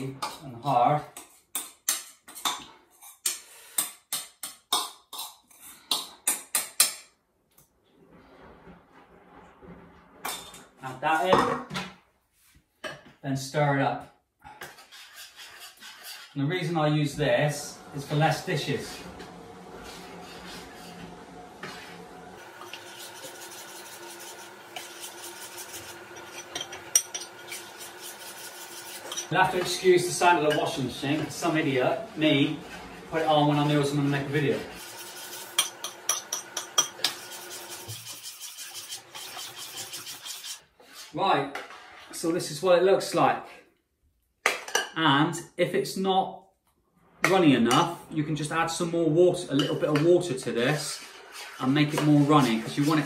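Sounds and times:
fork scraping glass bowl: 14.6 - 16.4, 19.8 - 31.2, 33.9 - 42.1, 50.9 - 53.0
washing machine humming: 16.8 - 40.5.

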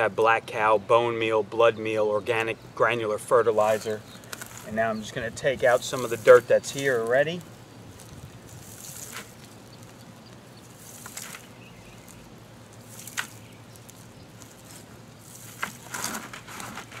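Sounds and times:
hands scraping soil: 3.5 - 10.0, 10.6 - 17.0.

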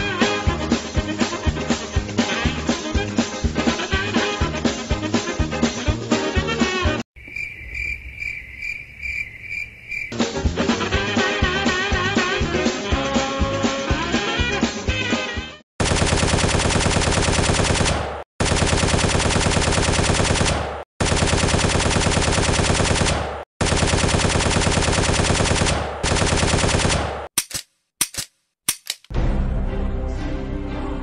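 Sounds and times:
machine-gun fire bursts: 15.8 - 27.3.

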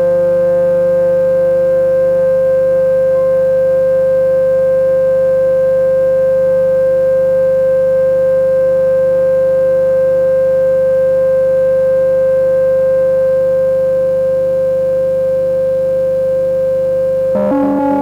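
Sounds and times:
synthesizer drone: 17.4 - 18.0.

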